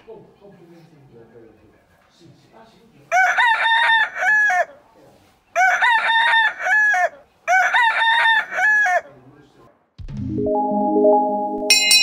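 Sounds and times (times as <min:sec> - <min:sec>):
rooster crowing: 0:03.1 - 0:04.8, 0:05.6 - 0:09.1.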